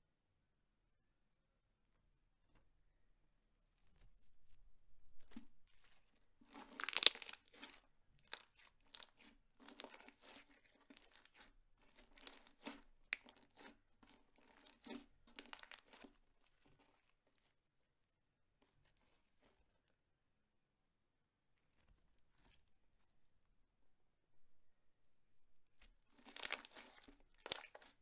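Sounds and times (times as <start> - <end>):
slime squished by hand: 5.2 - 16.2, 26.1 - 28.0.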